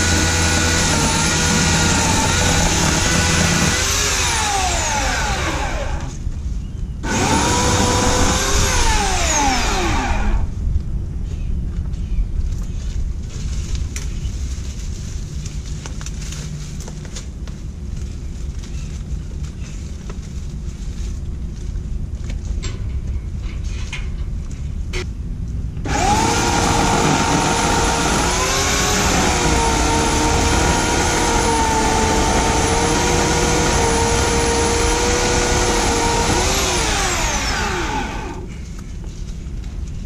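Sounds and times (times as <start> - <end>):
electric chainsaw whining: 0.0 - 6.2, 7.0 - 10.5, 25.8 - 38.5.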